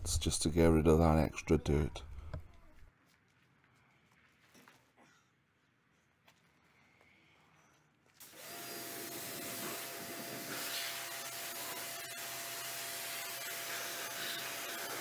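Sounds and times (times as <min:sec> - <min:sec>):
pressure washer motor: 0:08.2 - 0:15.0
water jet hissing: 0:08.2 - 0:15.0.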